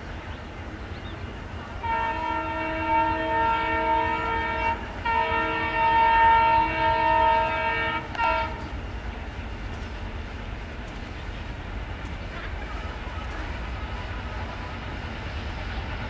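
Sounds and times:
locomotive air horn blasts: 0:01.8 - 0:08.7.

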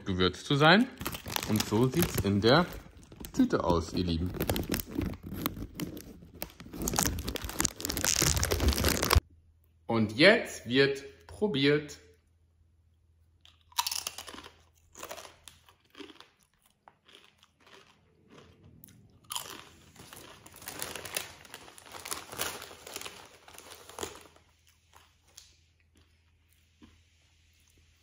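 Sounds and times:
potato chip crunching: 0:00.8 - 0:09.2, 0:13.5 - 0:27.1.

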